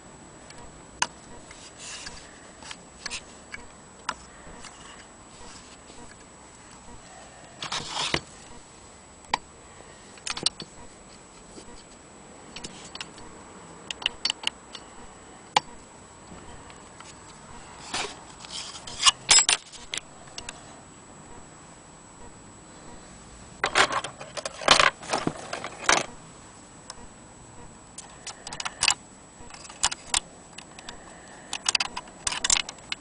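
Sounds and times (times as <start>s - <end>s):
metal clicks and scrapes: 17.8s - 20.6s, 28.0s - 33.0s.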